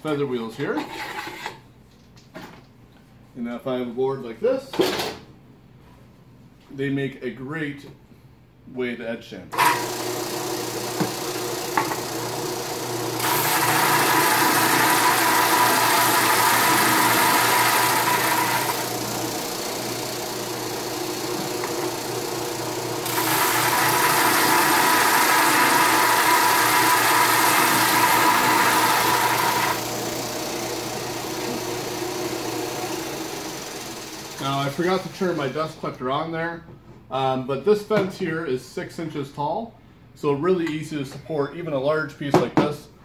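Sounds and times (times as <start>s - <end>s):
drum sander motor hum: 9.6s - 35.1s.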